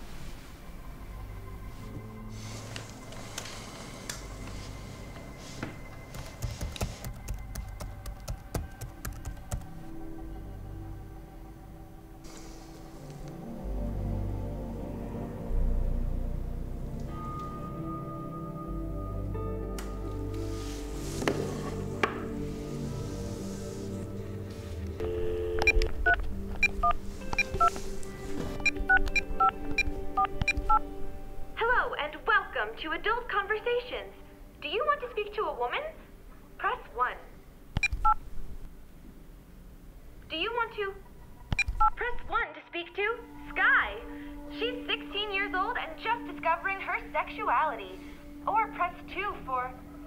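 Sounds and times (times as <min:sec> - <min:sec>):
soft background music: 0:00.0 - 0:50.0
laptop keyboard typing: 0:06.1 - 0:09.8
phone keypad beeps: 0:25.5 - 0:27.7, 0:28.6 - 0:30.8, 0:41.6 - 0:42.0.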